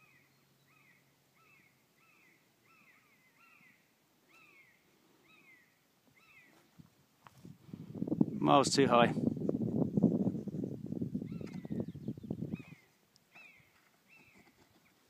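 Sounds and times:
faint bird calling: 0.0 - 6.7, 11.2 - 15.0.

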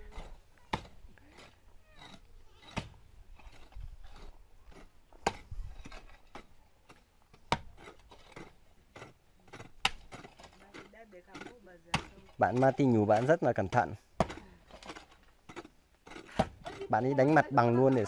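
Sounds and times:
hoe scraping soil: 0.0 - 18.0
hoe chopping into earth: 13.1 - 16.9.

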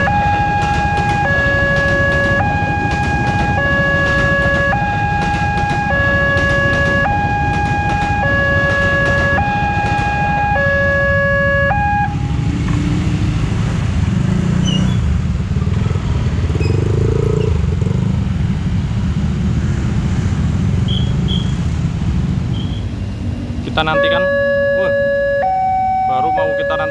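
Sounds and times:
level crossing alarm two-tone: 0.0 - 12.3, 23.9 - 26.9
motorbike and car traffic: 0.0 - 26.9
passing train rumble: 0.0 - 26.9.

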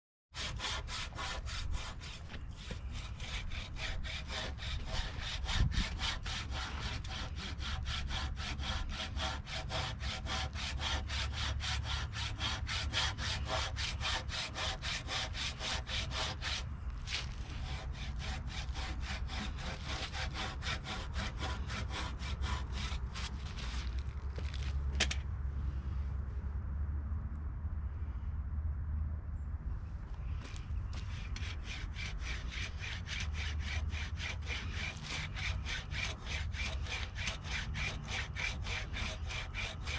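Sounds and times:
rasp plane scraping wood: 0.4 - 24.0, 30.9 - 39.9.

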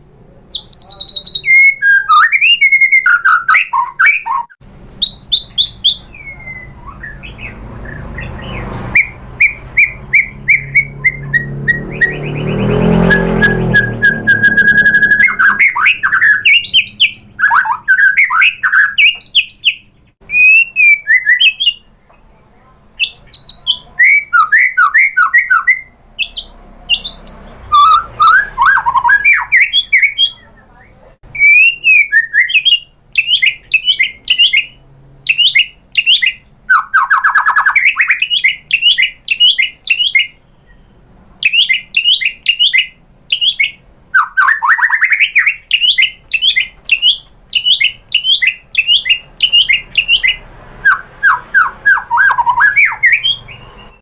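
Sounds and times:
songbird whistling and trilling: 0.5 - 21.9, 23.0 - 30.7, 31.3 - 54.0.

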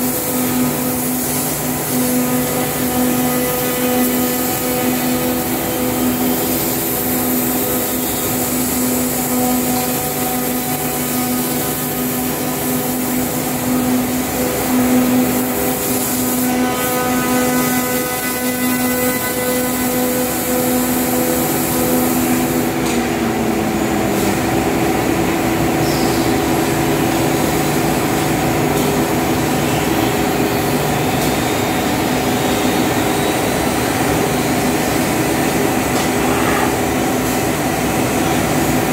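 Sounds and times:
router machine whine: 16.4 - 23.9.

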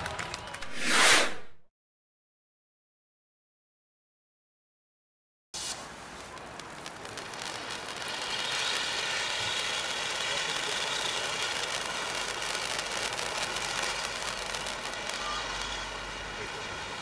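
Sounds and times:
firework fountain hissing sparks: 5.6 - 17.0.

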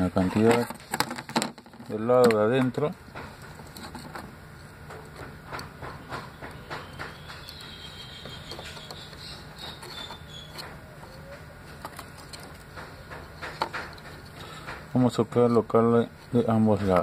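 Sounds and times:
faint high chirping: 6.0 - 11.6.

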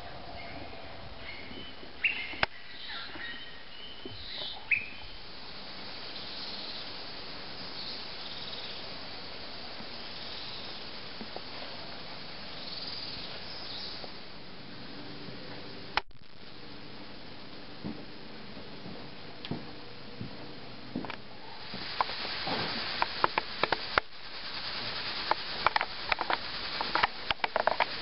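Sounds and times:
insects hissing: 0.0 - 14.8, 21.4 - 28.0
soft high bird calls: 0.3 - 11.1, 12.4 - 14.1
birds whistling calls: 1.2 - 5.2.

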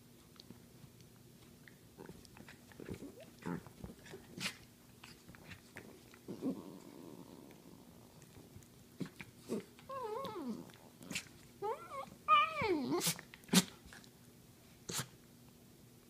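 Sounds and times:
dogs growling playfully: 1.9 - 14.0.

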